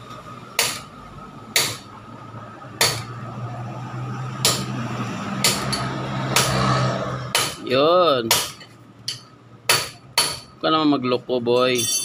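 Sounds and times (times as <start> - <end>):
sharp metallic clinks: 11.7 - 12.0.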